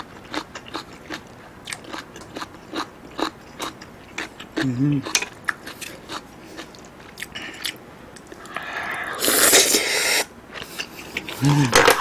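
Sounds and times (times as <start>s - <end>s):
loud slurp: 8.9s - 10.2s.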